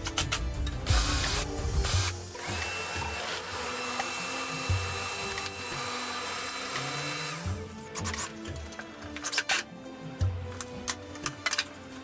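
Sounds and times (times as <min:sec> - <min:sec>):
background music: 0:00.0 - 0:12.0
power tool motor whine: 0:00.9 - 0:07.6
cordless drill boring into wood: 0:02.3 - 0:07.5.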